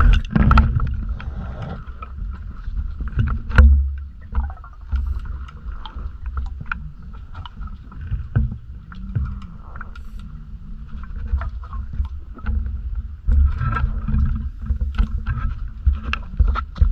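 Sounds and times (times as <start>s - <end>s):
sharp clicks and knocks: 0.0s - 1.3s
faint steady hum: 0.0s - 16.9s
low underwater rumble: 0.0s - 16.9s.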